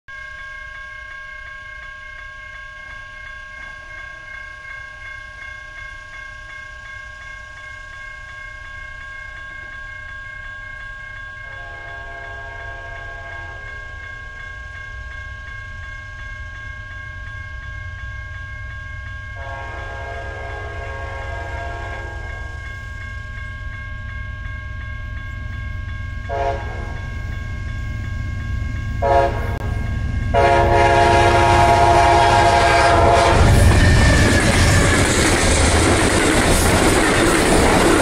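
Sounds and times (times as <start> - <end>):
railroad crossing bell ringing: 0.1 - 38.0
train horn: 11.4 - 13.9, 19.4 - 22.5, 26.3 - 27.1, 29.0 - 35.0.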